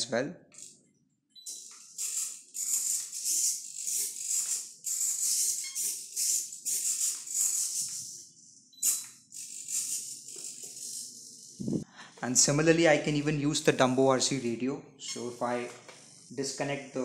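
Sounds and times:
small servos buzzing: 1.4s - 11.8s, 15.0s - 17.0s.

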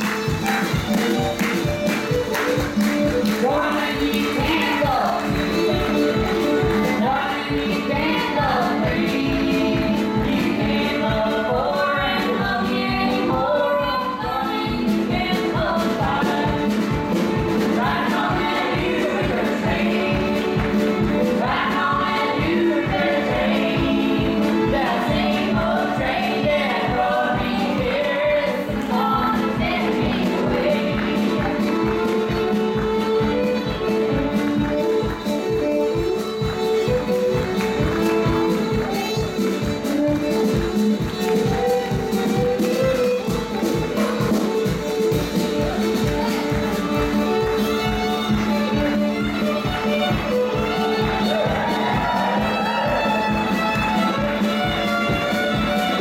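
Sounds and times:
steady drum beat: 0.0s - 13.1s, 14.9s - 56.0s
acoustic guitar: 0.0s - 56.0s
fiddle playing melody: 0.0s - 56.0s
voices singing together: 3.4s - 16.8s, 17.6s - 31.8s, 50.1s - 54.5s.

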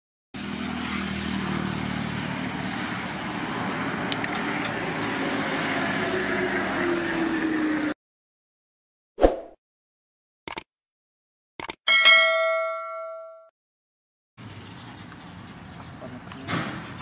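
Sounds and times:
hissing bursts: 0.4s - 3.2s
engine running: 0.4s - 8.0s.

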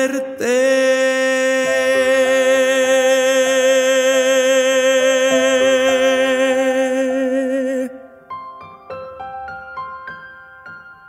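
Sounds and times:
man singing long note: 0.0s - 8.2s
soft piano chords: 1.3s - 11.0s.

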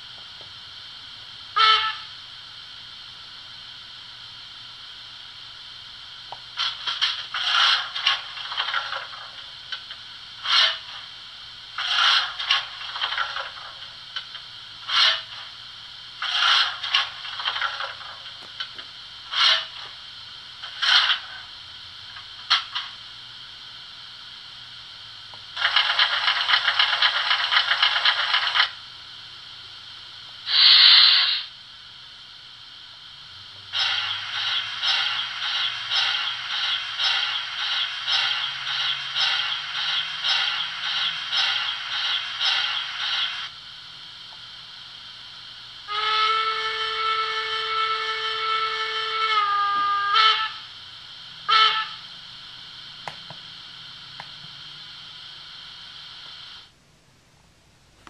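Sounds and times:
hissing and scraping bursts: 6.4s - 23.1s, 25.6s - 28.8s, 30.4s - 31.6s, 33.6s - 43.6s
rattling burst: 25.5s - 28.8s, 33.7s - 43.5s.

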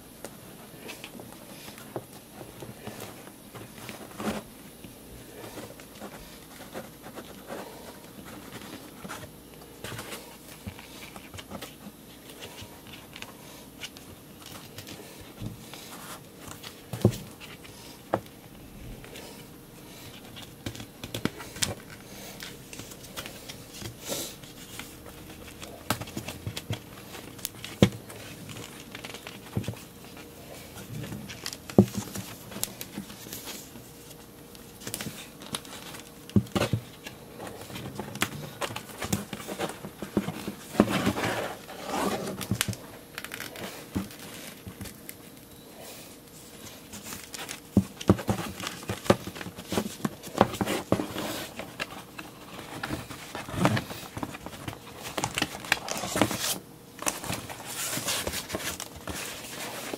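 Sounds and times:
hands handling cardboard box: 20.1s - 59.9s.

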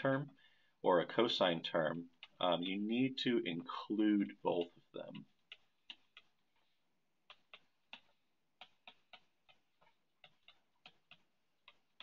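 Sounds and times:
stylus tapping on glass screen: 4.3s - 12.0s.

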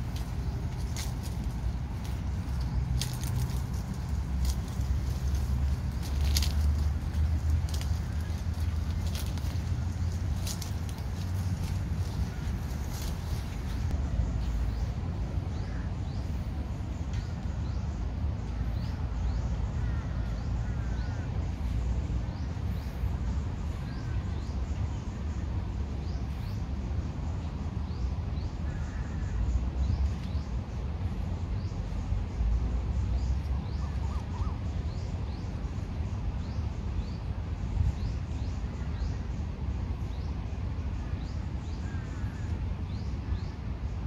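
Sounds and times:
birds chirping: 0.0s - 44.0s
steady low rumble: 0.0s - 44.0s
lower bird calls: 33.0s - 43.7s.

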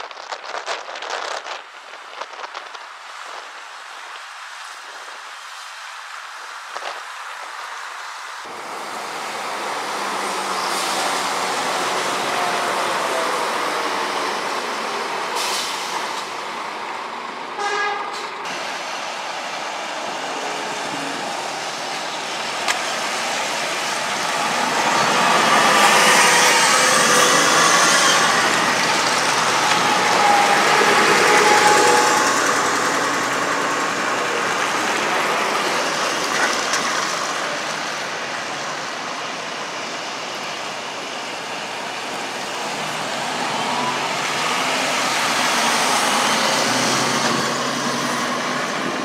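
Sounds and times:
bus driving past: 7.8s - 49.0s
short horn toot: 17.6s - 18.3s.

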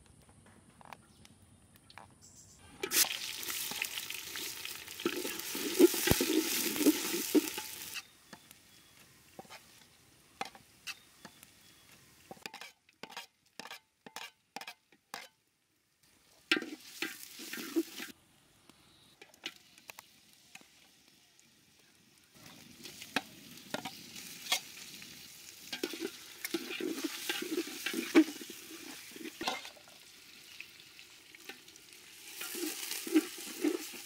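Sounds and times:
onions sizzling in hot oil: 2.8s - 15.3s, 16.2s - 18.2s, 18.9s - 34.0s
clicks and scrapes: 12.3s - 15.4s.

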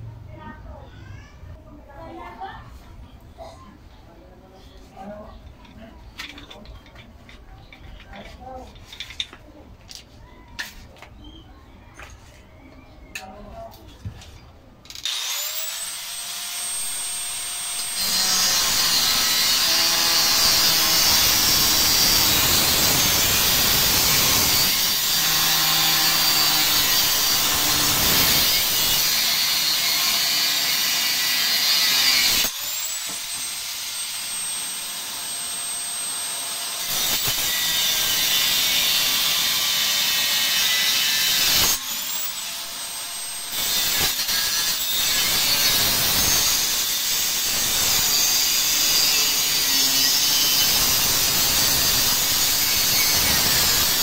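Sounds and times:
angle grinder cutting steel: 14.9s - 54.0s.

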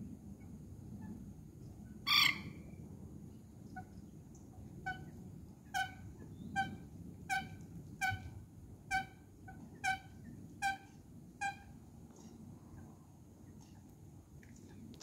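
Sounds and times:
coot calling: 2.1s - 2.6s.

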